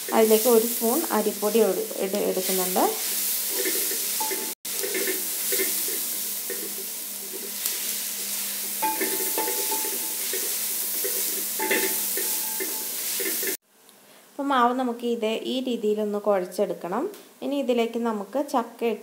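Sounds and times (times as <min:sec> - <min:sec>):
steady hiss: 0:00.0 - 0:14.2.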